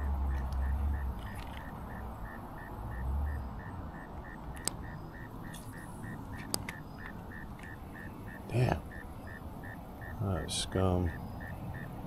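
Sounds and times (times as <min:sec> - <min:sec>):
insect chirping rhythmically: 0:00.0 - 0:12.0
sharp clicks: 0:04.5 - 0:04.8, 0:05.5 - 0:07.8.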